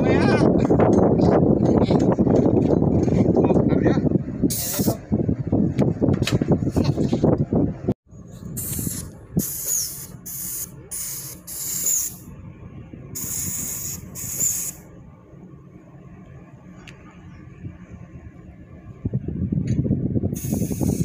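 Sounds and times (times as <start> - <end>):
spray gun hissing bursts: 8.6 - 12.3, 13.2 - 14.8, 20.4 - 21.0.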